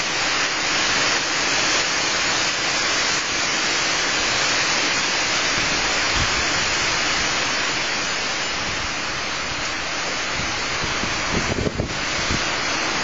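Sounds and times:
wind thrashing tree leaves: 0:00.0 - 0:13.0
wind buffeting microphone: 0:10.3 - 0:12.6.

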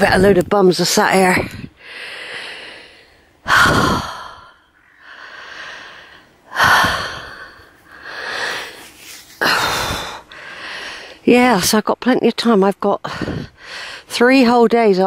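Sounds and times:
woman breathing heavily: 0:01.3 - 0:11.3, 0:13.0 - 0:14.1.

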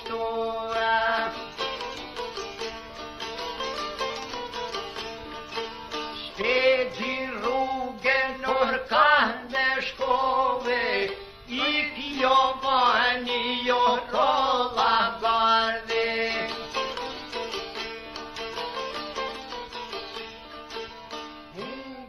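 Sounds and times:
man singing: 0:00.0 - 0:01.9, 0:06.4 - 0:17.0, 0:21.5 - 0:22.0
plucked strings: 0:00.0 - 0:22.0.

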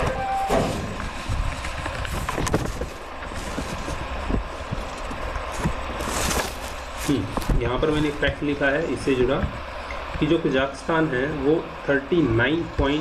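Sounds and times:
brief tone: 0:00.0 - 0:00.8.

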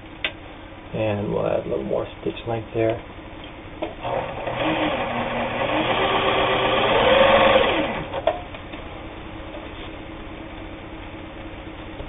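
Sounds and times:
sewing machine stitching: 0:04.0 - 0:08.2.

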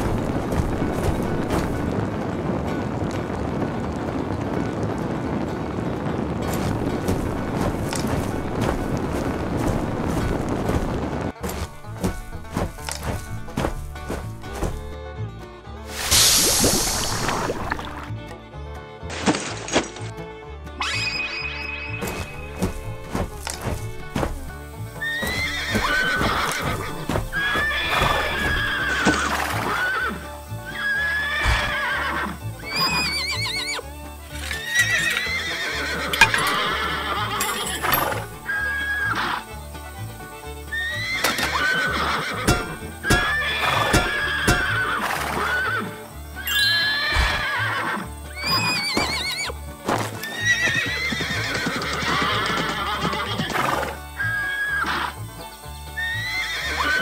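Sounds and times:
background music: 0:00.0 - 0:57.0
horses whinnying: 0:20.8 - 0:22.8, 0:25.0 - 0:39.5, 0:40.7 - 0:55.3, 0:56.0 - 0:57.0.

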